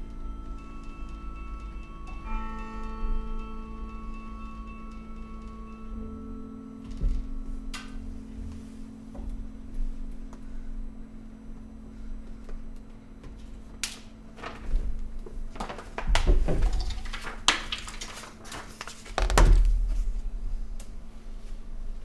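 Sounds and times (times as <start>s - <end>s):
low hum of carillon bell: 0.0s - 13.6s.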